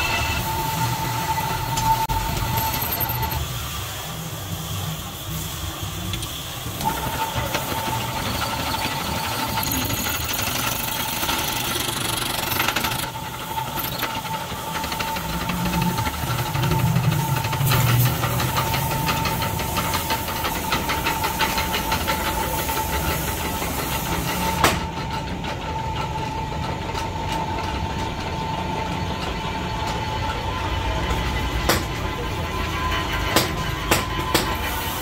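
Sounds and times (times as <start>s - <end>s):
drill press whining: 0.0s - 4.9s, 5.6s - 22.1s.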